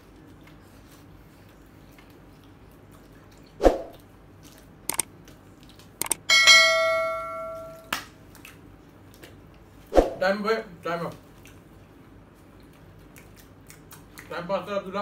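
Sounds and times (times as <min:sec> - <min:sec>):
bell ding: 0:06.3 - 0:07.9.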